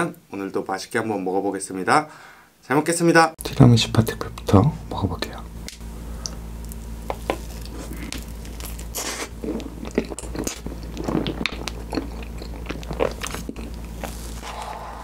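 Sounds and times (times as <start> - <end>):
person chewing: 6.2 - 15.0.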